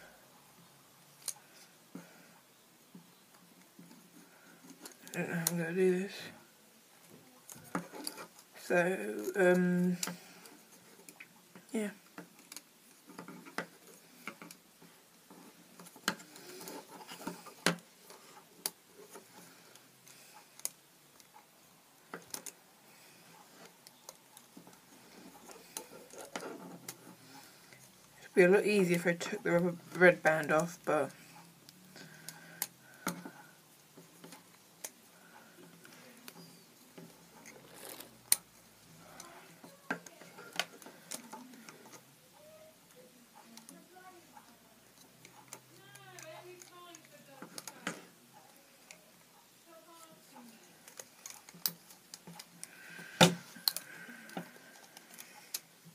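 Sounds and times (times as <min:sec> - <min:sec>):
rubber bands clicking on pencils: 0:01.0 - 0:06.4, 0:07.0 - 0:55.9
small clicks and taps: 0:10.0 - 0:21.4.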